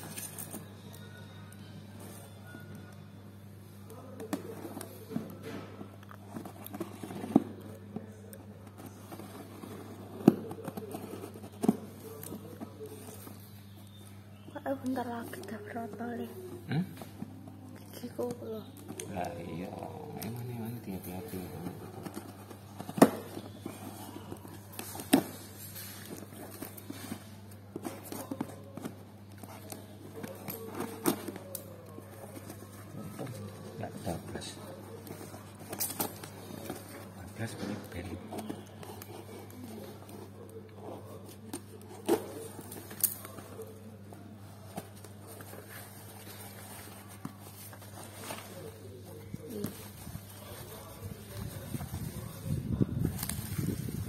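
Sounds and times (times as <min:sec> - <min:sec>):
tape crinkling: 0:17.0 - 0:54.0.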